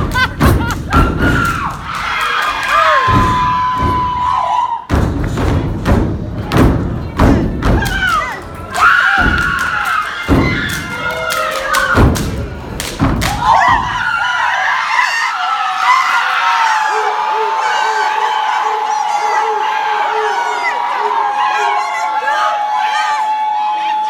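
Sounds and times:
stomping on a stage: 0.0s - 2.0s, 2.8s - 14.0s
hand claps: 7.7s - 13.5s.

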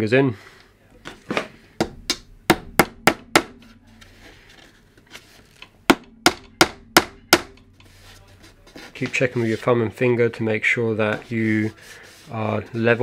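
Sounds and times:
hammer striking nail: 1.8s - 3.6s, 5.9s - 7.7s.

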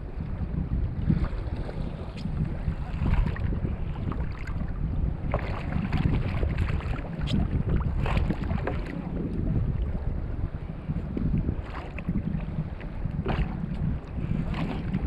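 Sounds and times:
water lapping against kayak hull: 0.0s - 15.0s
wind buffeting microphone: 0.0s - 15.0s.

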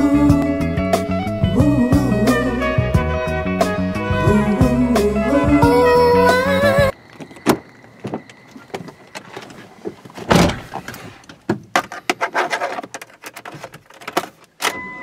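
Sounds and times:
clicks and rattles inside car: 7.2s - 14.8s.

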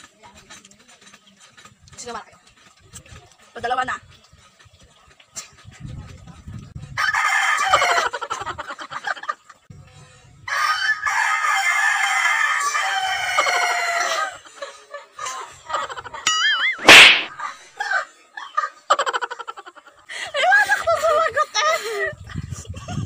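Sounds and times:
sudden loud burst: 16.8s - 17.4s.

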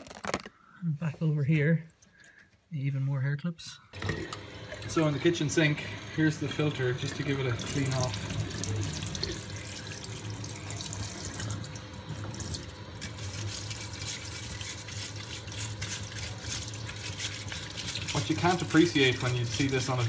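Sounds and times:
brush scrubbing under water: 13.0s - 20.0s.

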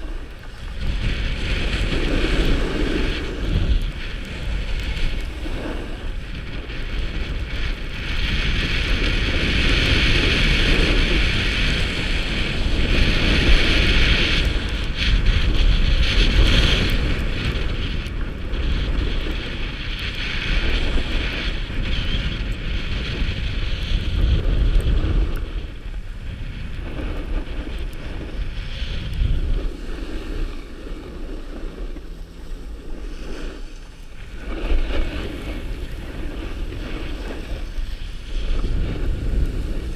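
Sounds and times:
skis sliding on snow: 0.0s - 39.9s
wind buffeting microphone: 0.0s - 39.9s.

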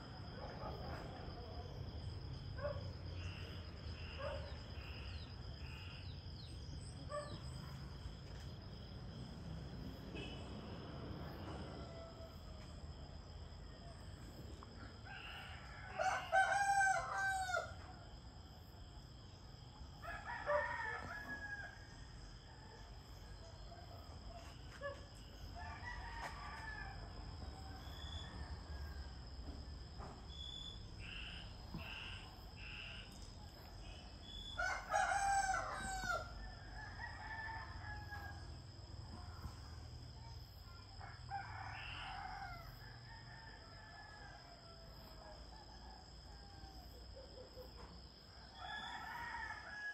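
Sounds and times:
roosters crowing: 15.0s - 17.9s, 34.5s - 38.4s, 48.5s - 49.9s.

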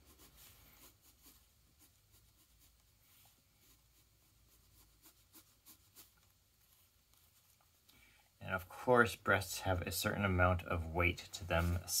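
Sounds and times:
pencil scratching on paper: 0.0s - 7.4s.

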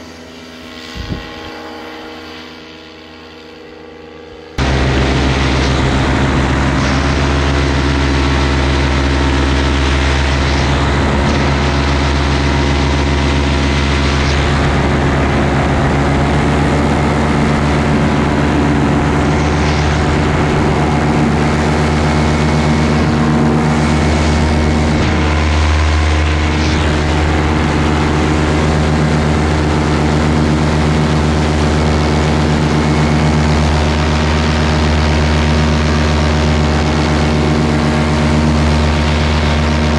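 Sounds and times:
paramotor engine drone: 0.0s - 39.9s
rush of air: 4.6s - 34.3s.

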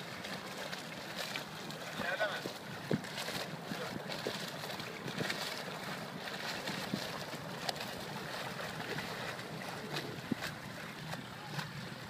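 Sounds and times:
outboard motor humming: 0.0s - 12.0s
water splashing: 0.0s - 12.0s
wind on microphone: 2.4s - 7.4s, 8.0s - 12.0s.

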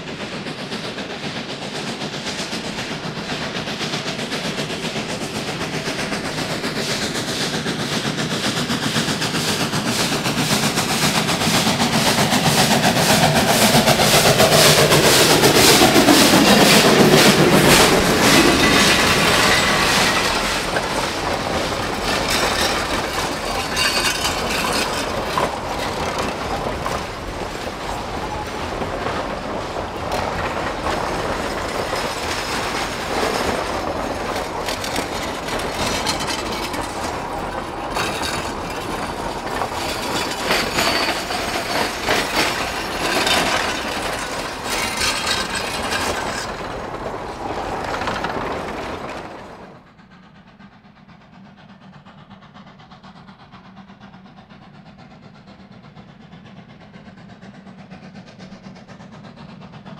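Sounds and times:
train coaches rolling past: 0.0s - 59.9s
wheels clicking over rail joints: 0.1s - 49.8s
wheel squeal: 9.4s - 27.0s.

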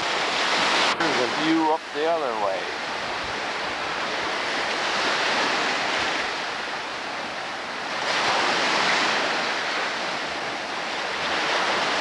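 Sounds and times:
waves breaking on shore: 0.0s - 12.0s.

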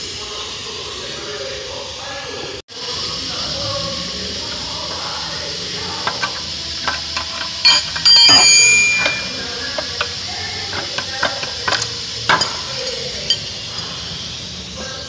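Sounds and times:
wrenches clicking and knocking: 5.8s - 14.0s
loud metal clang: 6.1s - 13.9s.

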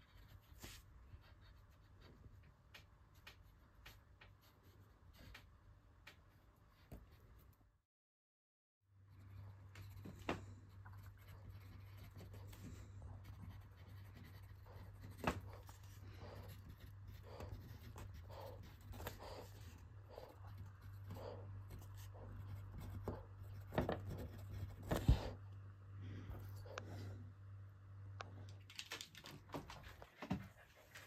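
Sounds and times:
pencil scratching on paper: 0.0s - 5.5s, 6.1s - 7.6s, 9.1s - 25.4s
steady low hum: 8.9s - 28.7s.

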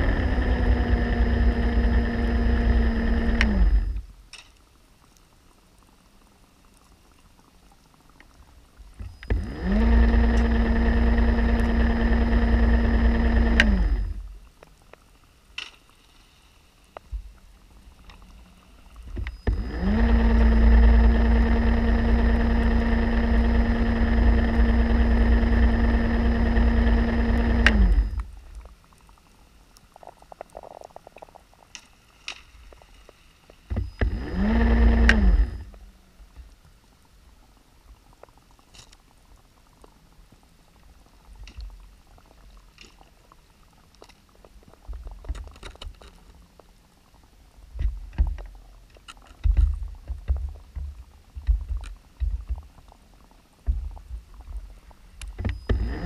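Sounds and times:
electric motor humming underwater: 0.0s - 4.2s, 8.9s - 14.6s, 17.0s - 29.2s, 33.6s - 36.8s, 47.7s - 56.0s
low rumbling bursts: 0.0s - 4.2s
faint clicks: 2.7s - 21.9s, 26.8s - 56.0s.

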